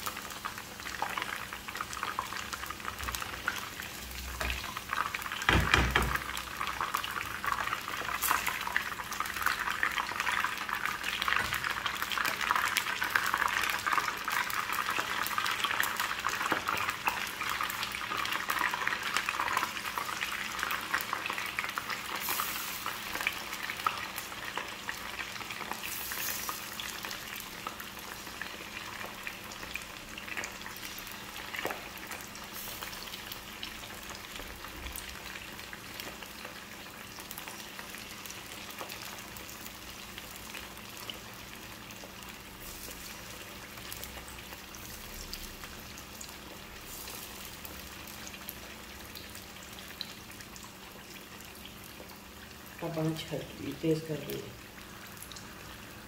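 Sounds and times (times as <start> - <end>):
oil sizzling with frying chicken: 0.0 - 56.0
knock: 5.5 - 6.2.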